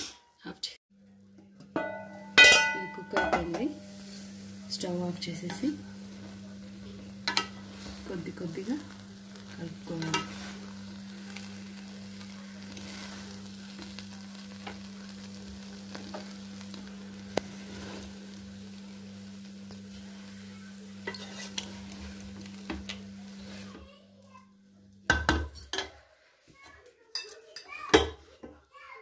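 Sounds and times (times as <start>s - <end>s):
spatula stirring rice in pot: 1.8s - 23.8s.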